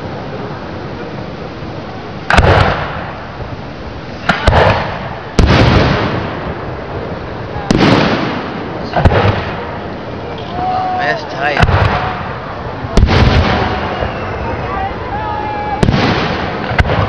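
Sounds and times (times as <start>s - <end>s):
firework shells bursting: 2.2s - 3.4s, 4.2s - 6.8s, 15.8s - 17.0s.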